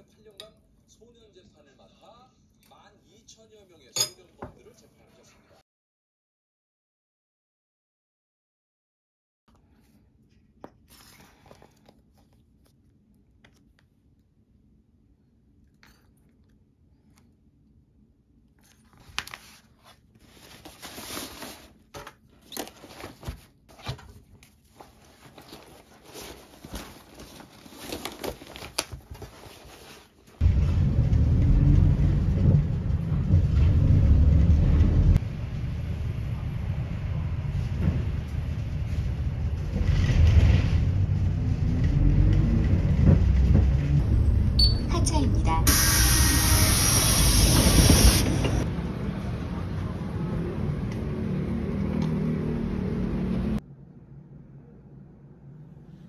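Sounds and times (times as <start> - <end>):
loud low rumble: 30.4 - 51.9.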